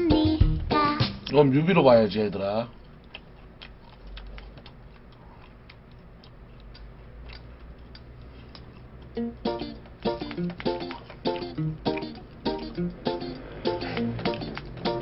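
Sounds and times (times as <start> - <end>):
song with plucked strings: 0.0 - 1.3, 9.2 - 15.0.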